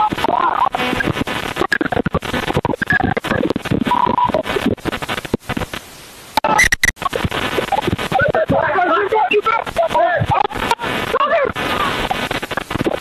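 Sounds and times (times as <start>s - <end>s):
sharp crackling clicks: 0.0s - 8.3s
people calling and shouting: 8.0s - 12.1s.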